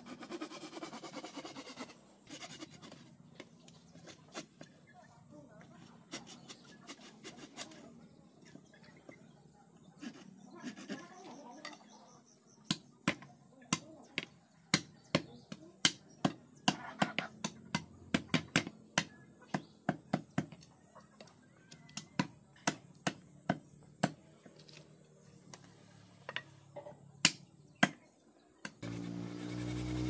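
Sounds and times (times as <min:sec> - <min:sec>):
steady motor hum: 0:28.8 - 0:30.0.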